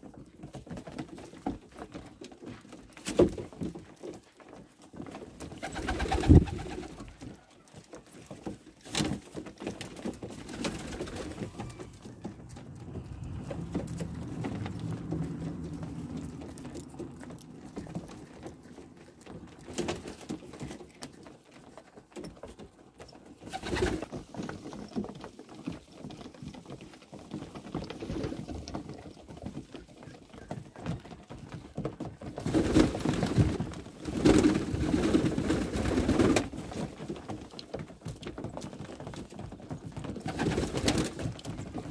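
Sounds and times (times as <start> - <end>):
wings flapping: 5.4 - 7.4, 8.8 - 18.5, 23.3 - 24.4, 32.4 - 37.0, 40.0 - 41.9
pigeons cooing: 10.5 - 18.7.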